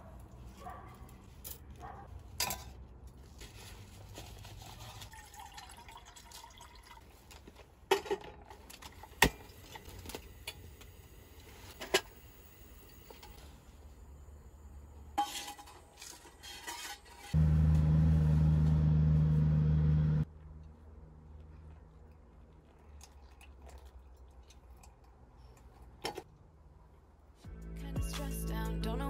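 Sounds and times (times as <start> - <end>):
hot water pouring: 5.0 - 7.4.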